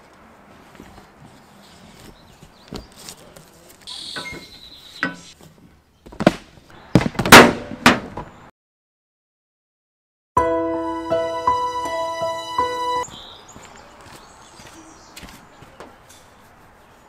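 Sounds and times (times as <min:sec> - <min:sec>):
sharp clanks and knocks: 0:04.2 - 0:05.4.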